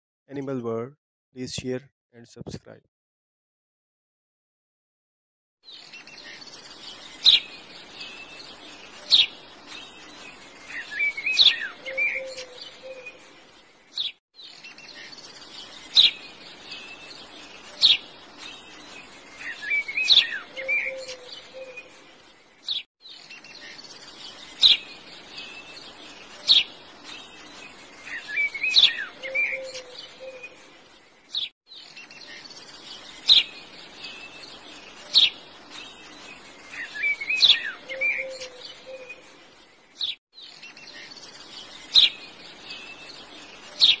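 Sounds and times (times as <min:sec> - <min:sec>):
birds chirping: 0:05.7 - 0:44.0.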